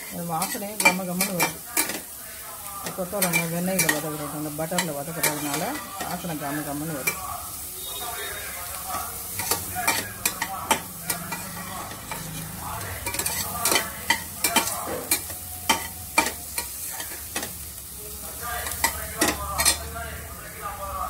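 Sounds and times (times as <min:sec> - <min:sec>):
light sizzle: 0:00.0 - 0:21.0
spatula scraping steel pan: 0:08.9 - 0:17.5.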